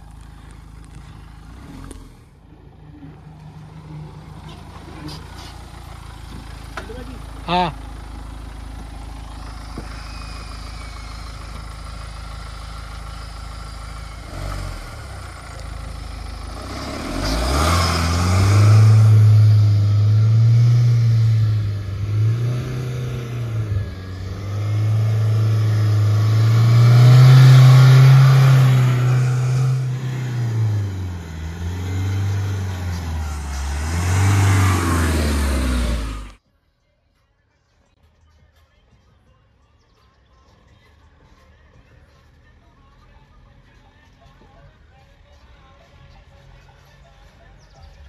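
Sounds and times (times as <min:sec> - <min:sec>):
diesel engine idling and revving: 0:00.0 - 0:36.4.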